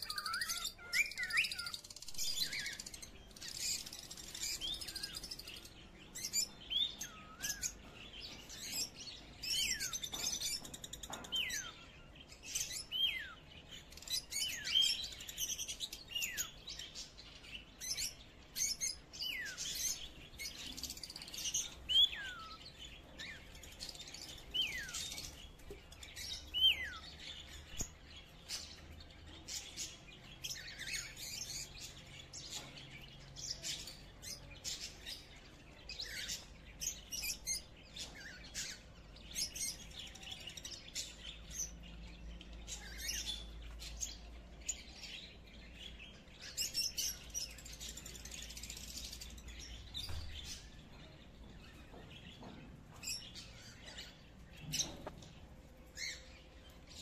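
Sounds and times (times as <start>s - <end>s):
small birds chirping: 0.0s - 57.0s.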